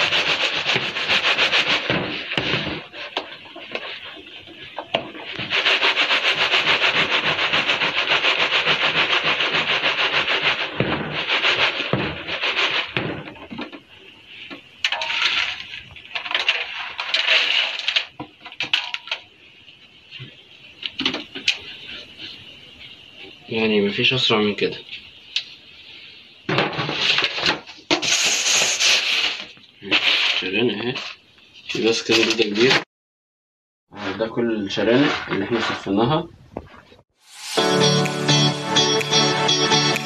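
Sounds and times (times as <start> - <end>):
grains rustling in a mesh sieve: 15.0 - 18.1, 28.0 - 31.0.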